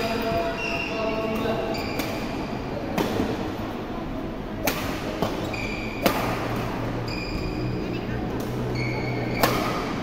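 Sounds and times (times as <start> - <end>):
sports hall background noise: 0.0 - 10.0
rackets striking shuttlecock: 4.6 - 6.8, 8.4 - 10.0.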